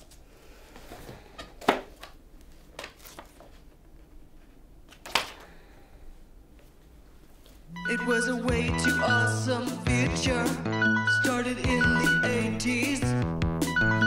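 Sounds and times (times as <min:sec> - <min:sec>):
paper rustling: 0:00.9 - 0:05.4.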